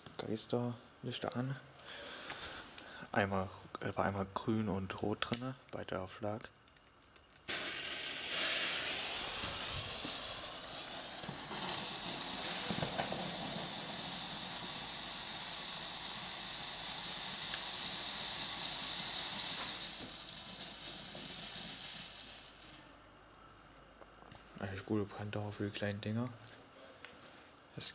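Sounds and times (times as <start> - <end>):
fountain fireworks hissing: 7.5 - 22.8.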